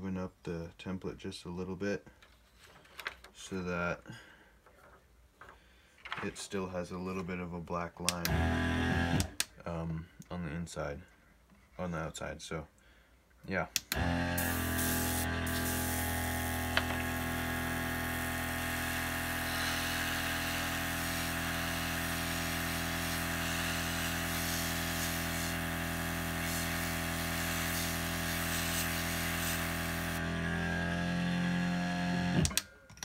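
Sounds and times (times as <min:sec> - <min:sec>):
compressor motor hum: 0:08.2 - 0:09.4, 0:13.8 - 0:32.6
airbrush spray hiss: 0:14.4 - 0:17.4, 0:18.2 - 0:30.2.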